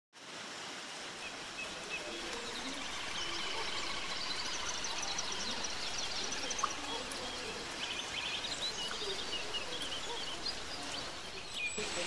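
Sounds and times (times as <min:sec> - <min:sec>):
steady outdoor hiss: 0:00.2 - 0:12.0
birds chirping: 0:01.2 - 0:12.0.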